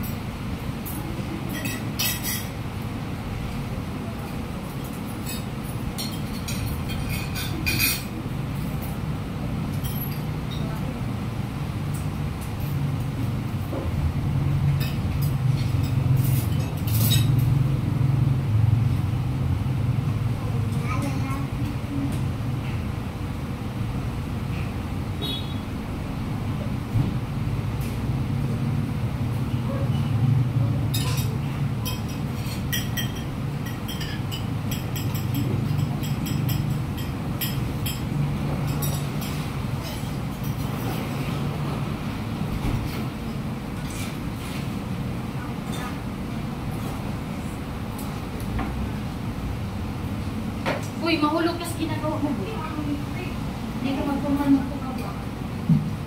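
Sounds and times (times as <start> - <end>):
cutlery clinking on plates: 1.5 - 2.6, 4.3 - 8.1, 9.7 - 10.8, 14.7 - 17.5, 30.9 - 41.2.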